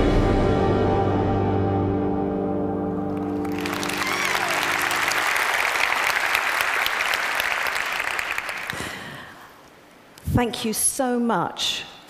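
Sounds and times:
audience applause: 0:03.1 - 0:09.3.

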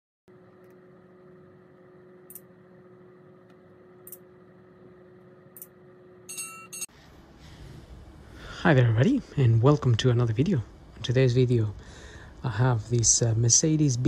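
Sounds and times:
faint steady hum: 0:00.3 - 0:14.0
bell-like chime: 0:06.3 - 0:06.9.

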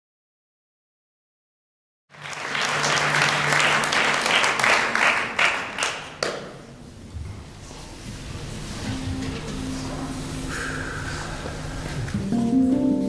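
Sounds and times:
audience applauding: 0:02.1 - 0:06.6
soft low notes: 0:07.0 - 0:13.0.

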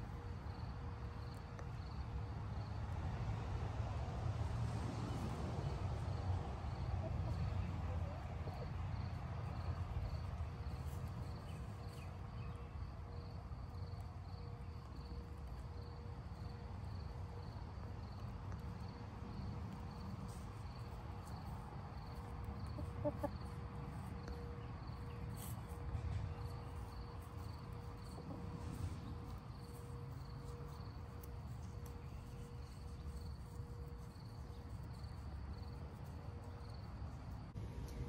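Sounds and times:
chickens clucking: 0:07.0 - 0:08.7, 0:21.2 - 0:24.3.

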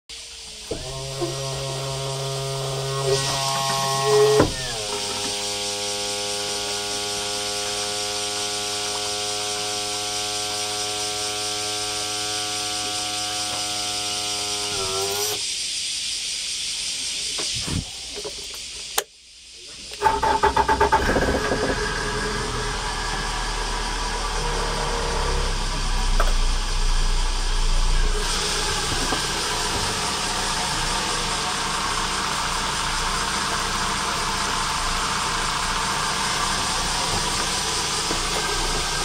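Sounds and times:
outboard motor running: 0:00.6 - 0:15.4, 0:20.8 - 0:39.0
click: 0:18.9 - 0:19.1
starter cranking: 0:20.0 - 0:22.6.

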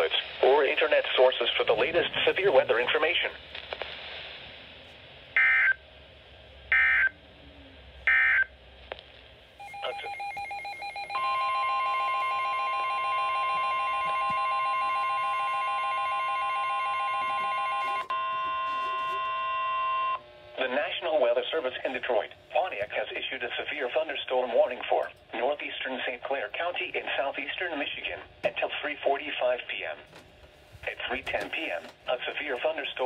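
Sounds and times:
shrill warning alarm tone: 0:09.6 - 0:20.2.

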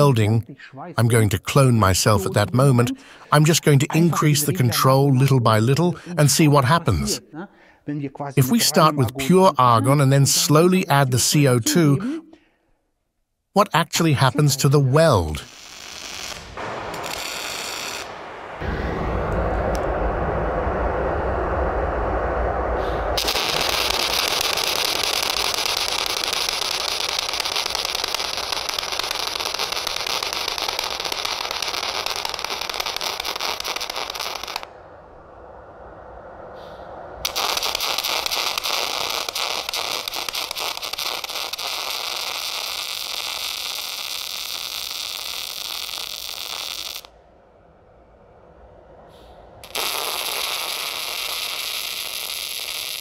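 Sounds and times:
welding arc crackling and spattering: 0:14.0 - 0:18.2, 0:23.2 - 0:34.7, 0:37.2 - 0:47.1, 0:49.6 - 0:53.0.

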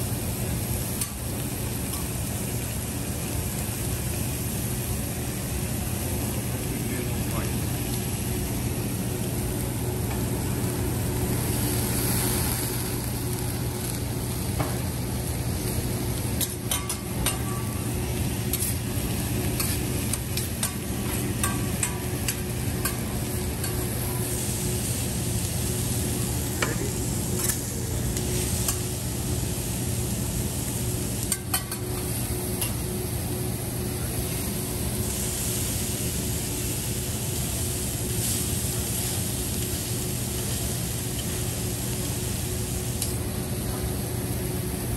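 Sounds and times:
food sizzling on a griddle: 0:00.0 - 0:44.9.

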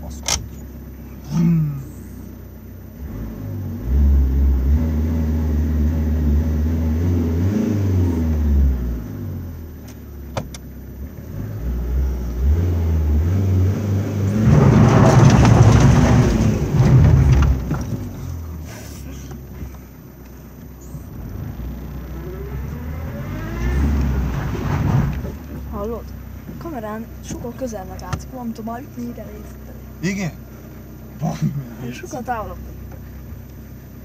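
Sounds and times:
car engine revving: 0:00.0 - 0:34.0.

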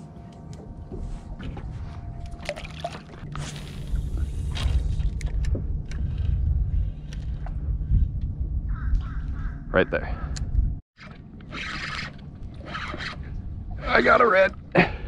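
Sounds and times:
water sloshing around boat: 0:00.0 - 0:06.4
wind rumbling on microphone: 0:03.2 - 0:10.8, 0:12.2 - 0:15.0.

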